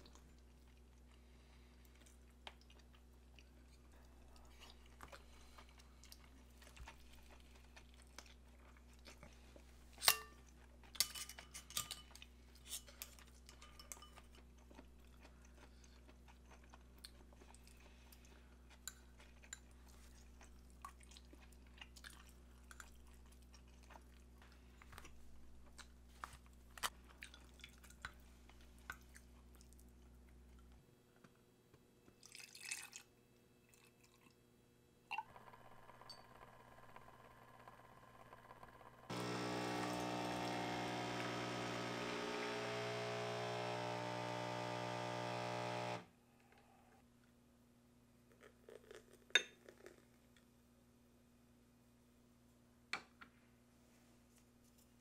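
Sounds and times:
chewing and crunching: 0.0 - 30.8.

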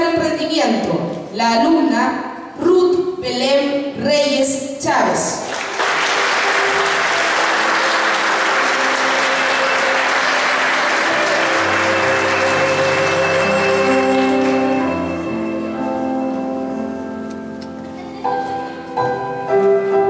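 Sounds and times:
audience applauding: 5.4 - 15.3
instrumental music with held notes: 6.0 - 20.0.

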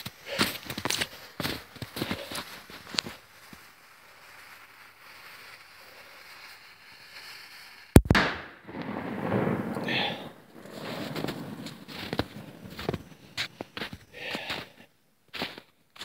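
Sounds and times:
explosive blast: 8.0 - 13.4
rumbling settling debris: 8.0 - 14.4.

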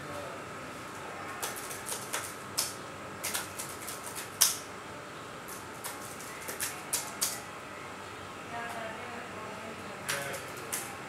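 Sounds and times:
laptop keyboard typing: 1.4 - 4.7, 5.5 - 7.5, 10.1 - 11.0.

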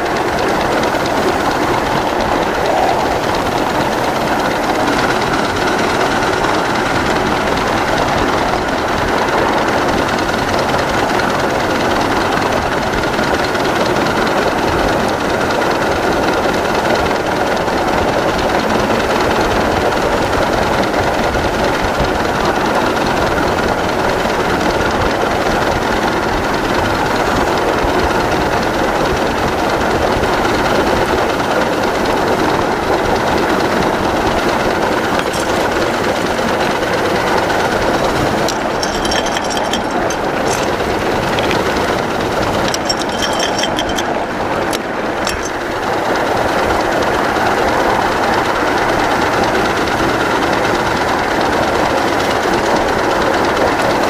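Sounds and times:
steam locomotive running: 0.0 - 54.0
clicks with high-pitched ringing: 35.1 - 36.2, 38.4 - 45.7.

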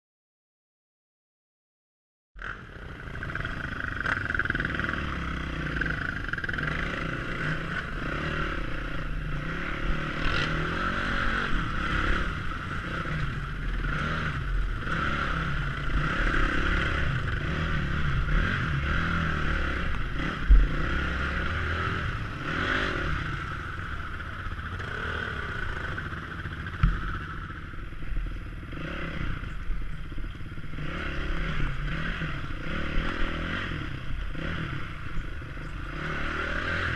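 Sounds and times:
dirt bike engine running: 2.4 - 36.9.

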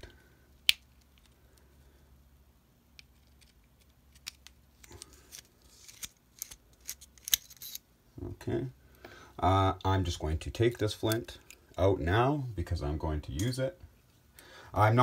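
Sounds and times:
metal pick clicking and scraping: 3.0 - 7.8.

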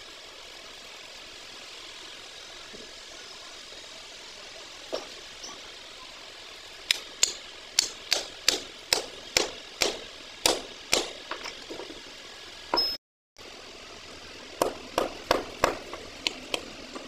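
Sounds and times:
hammer striking metal: 7.2 - 11.2.

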